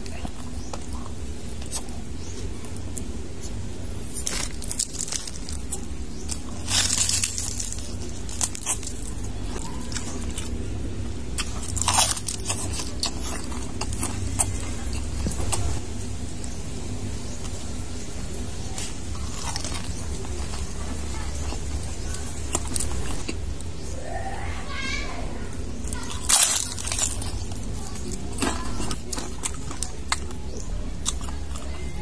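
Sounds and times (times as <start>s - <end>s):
crunching and chewing food: 0.0s - 32.0s
steady low hum: 0.0s - 32.0s.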